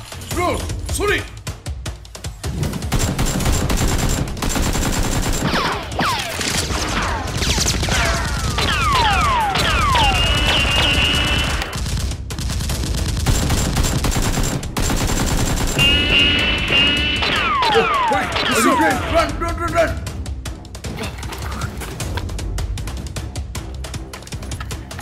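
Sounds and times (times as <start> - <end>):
rapid automatic gunfire: 2.7 - 16.4.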